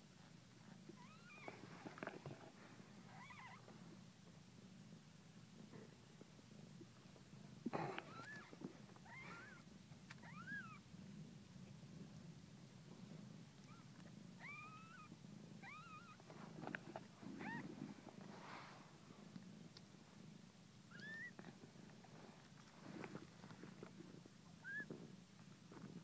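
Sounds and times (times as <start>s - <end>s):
cats purring: 0.0s - 26.0s
kittens mewing: 7.7s - 9.6s, 24.6s - 24.9s.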